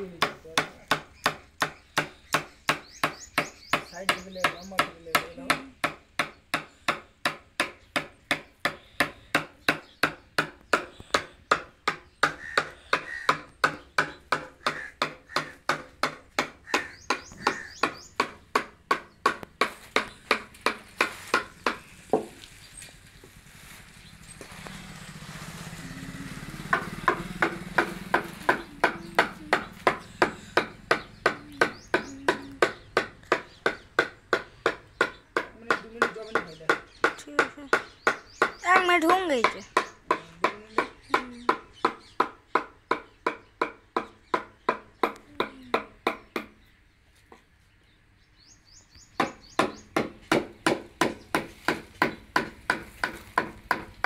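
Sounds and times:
hammer tapping chisel into wood: 0:00.2 - 0:22.4, 0:26.7 - 0:38.6.

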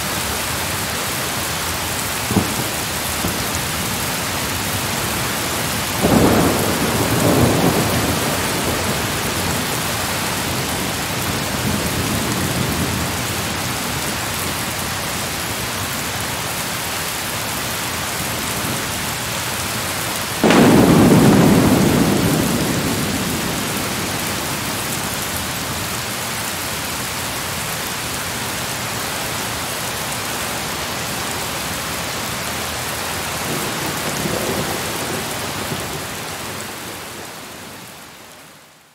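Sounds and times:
steady rain: 0:00.0 - 0:38.9
thunder rumbling: 0:02.0 - 0:14.2, 0:20.4 - 0:26.5, 0:33.3 - 0:37.9.

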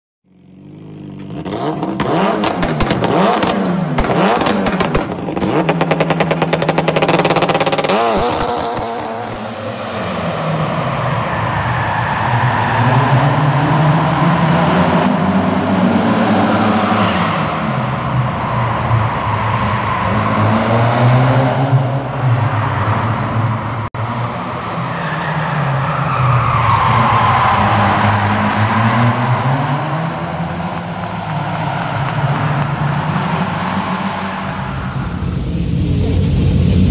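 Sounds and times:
engine revving hard: 0:00.6 - 0:10.7, 0:20.0 - 0:24.6, 0:26.8 - 0:36.9.

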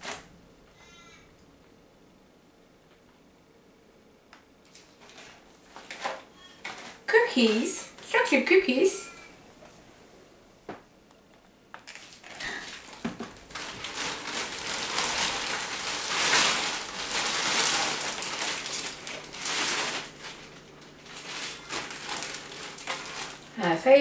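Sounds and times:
plastic bag rustling: 0:00.0 - 0:00.3, 0:04.7 - 0:08.4, 0:11.8 - 0:24.0.

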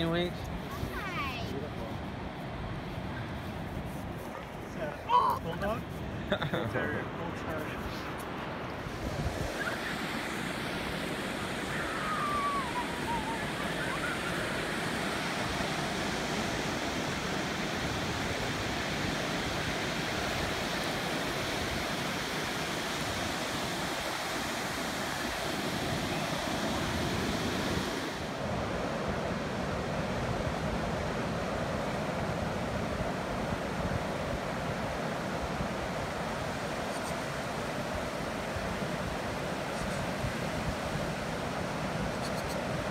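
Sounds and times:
ocean surf breaking: 0:04.5 - 0:42.9
faint falling whistle: 0:11.7 - 0:14.5.

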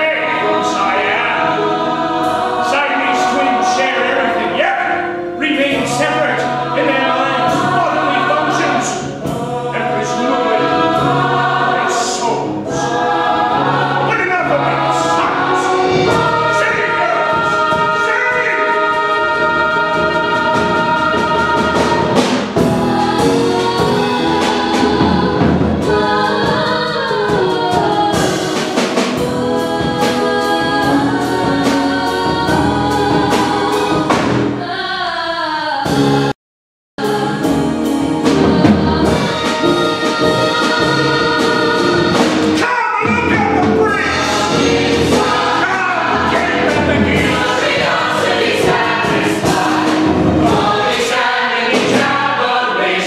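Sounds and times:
cast singing in chorus: 0:00.0 - 0:36.3, 0:37.0 - 0:53.0
musical accompaniment: 0:00.0 - 0:36.3, 0:37.0 - 0:53.0.

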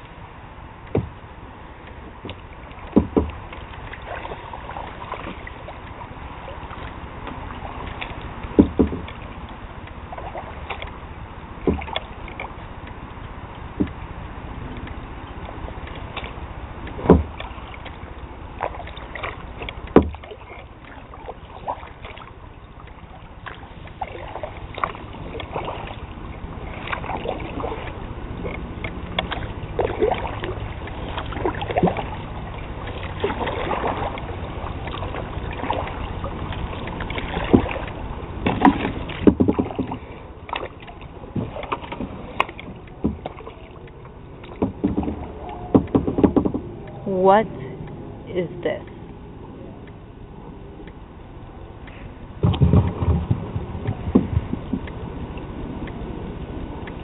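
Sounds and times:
paddle splashing in water: 0:00.8 - 0:47.7, 0:51.7 - 0:57.0
sharp knocks: 0:00.9 - 0:01.2, 0:02.2 - 0:03.4, 0:08.6 - 0:09.1, 0:17.0 - 0:17.4, 0:19.9 - 0:20.2, 0:38.4 - 0:40.0, 0:41.4 - 0:43.4, 0:44.4 - 0:46.7, 0:52.4 - 0:54.9.

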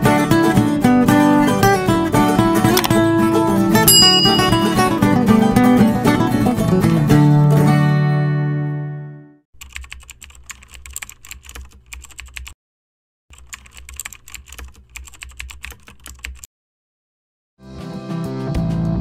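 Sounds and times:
acoustic guitar music: 0:00.0 - 0:08.9
rapid keyboard key clicks: 0:09.6 - 0:12.6, 0:13.3 - 0:16.5.

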